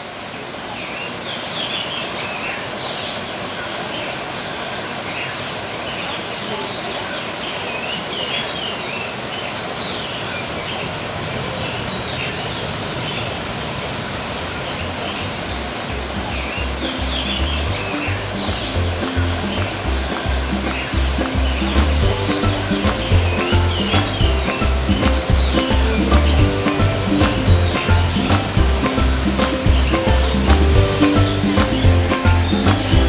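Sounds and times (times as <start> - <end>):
small birds chirping: 0.0 - 33.0
steady rushing hiss: 10.1 - 33.0.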